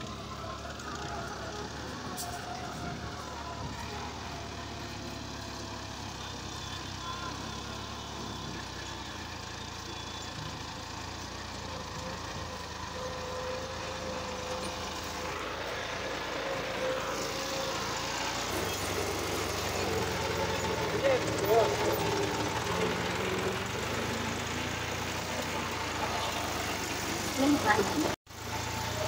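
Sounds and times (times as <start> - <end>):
tractor diesel engine running: 0.0 - 29.0.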